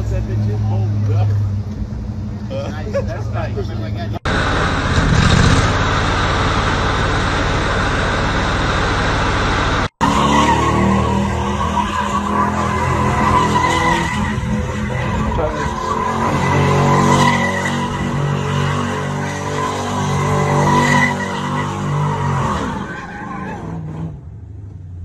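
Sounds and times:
engine revving high: 0:04.2 - 0:24.2
car tires spinning on wet ground: 0:04.3 - 0:24.2
tire squeal: 0:04.3 - 0:24.3.

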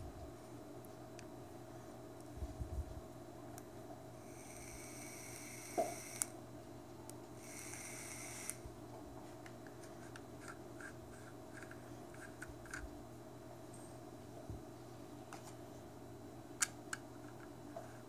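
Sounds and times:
vape electronics high whine: 0:04.2 - 0:06.4, 0:07.4 - 0:08.6.

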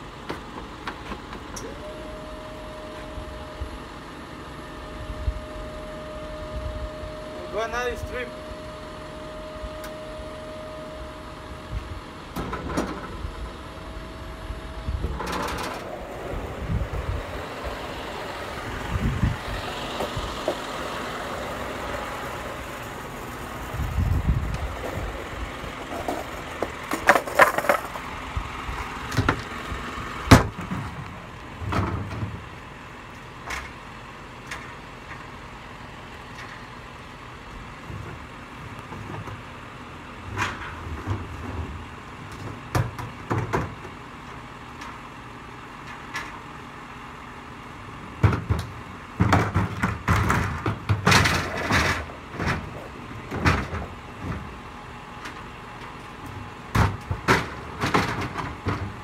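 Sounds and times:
knocks and clattering: 0:48.2 - 0:54.5, 0:56.7 - 0:59.0.

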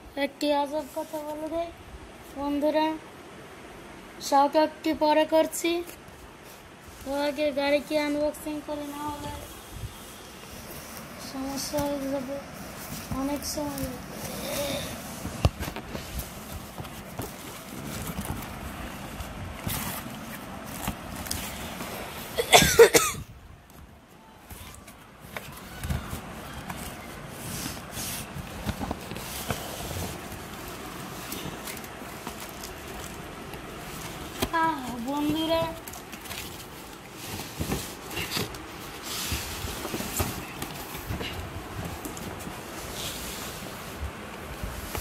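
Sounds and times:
hands rustling cloth and cardboard: 0:00.4 - 0:02.9, 0:05.6 - 0:22.5, 0:23.6 - 0:45.0
person coughing: 0:22.4 - 0:23.2.

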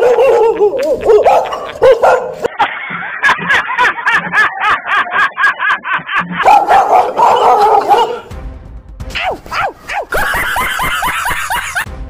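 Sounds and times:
fake dog barking: 0:00.0 - 0:02.4, 0:06.4 - 0:08.3.

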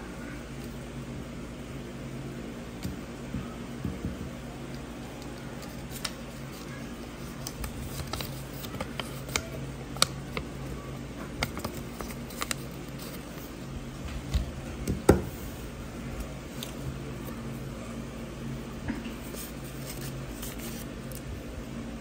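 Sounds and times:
steady low hum: 0:00.0 - 0:22.0
paper rustling: 0:05.2 - 0:10.6, 0:11.2 - 0:13.5, 0:19.1 - 0:21.2.

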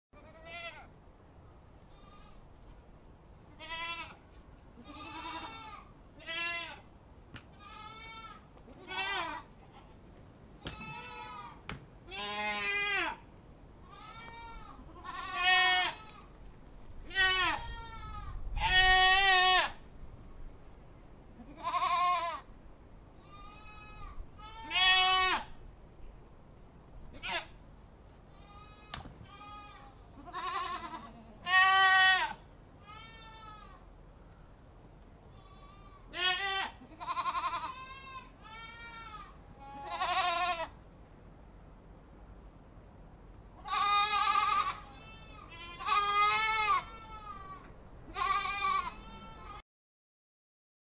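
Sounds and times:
goats bleating: 0:00.2 - 0:00.8, 0:03.5 - 0:04.2, 0:04.8 - 0:06.9, 0:07.5 - 0:09.9, 0:10.6 - 0:13.2, 0:13.8 - 0:16.3, 0:17.1 - 0:19.8, 0:21.4 - 0:22.4, 0:23.2 - 0:25.5, 0:27.1 - 0:27.6, 0:28.3 - 0:33.8, 0:35.3 - 0:40.8, 0:43.6 - 0:49.6.

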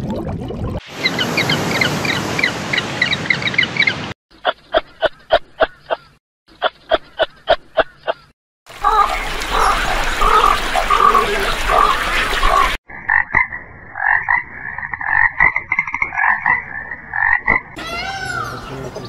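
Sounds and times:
peacock calling: 0:01.0 - 0:12.8
water splashing: 0:08.7 - 0:12.8
frog croaking: 0:08.8 - 0:17.8.

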